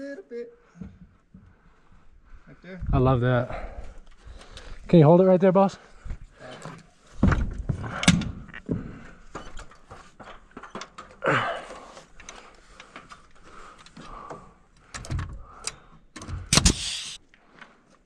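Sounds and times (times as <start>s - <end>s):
nailer handling knocks and clatter: 7.2s - 8.9s
nail gun bang with air hiss: 16.4s - 17.2s.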